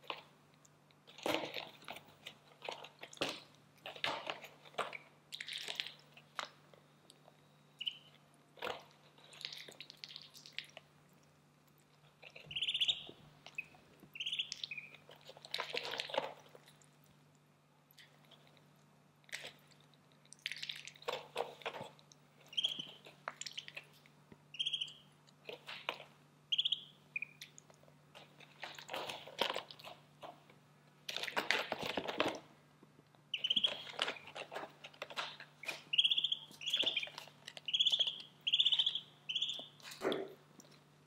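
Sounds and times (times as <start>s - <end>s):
ducklings pecking in feed and water: 0.0s - 41.0s
ducklings peeping: 7.8s - 8.8s, 12.2s - 16.4s, 22.5s - 23.9s, 24.5s - 27.6s, 33.3s - 34.4s, 35.2s - 40.0s.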